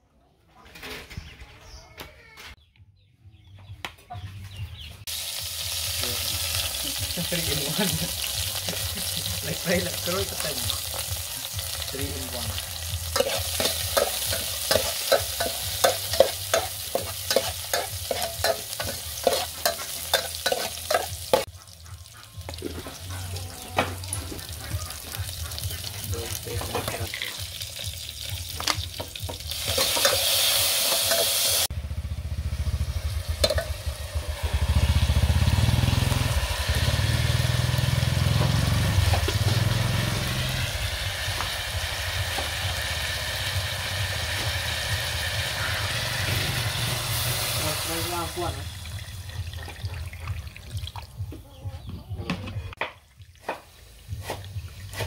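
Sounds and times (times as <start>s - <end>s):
food sizzling in a pot: 5.1s - 31.7s, 32.4s - 50.8s, 53.2s - 55.0s
metal ladle scraping a pot: 13.1s - 21.5s
liquid hissing in hot pot: 29.5s - 31.7s, 34.4s - 48.6s.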